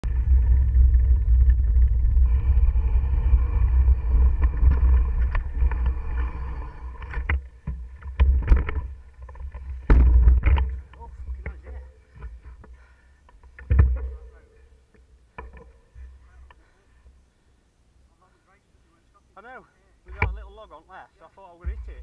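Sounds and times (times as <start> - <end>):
wind rumble on microphone: 0.0 - 11.4
bike knocking and rattling: 0.0 - 16.8, 21.6 - 22.0
bike tyre and frame noise: 0.0 - 17.2.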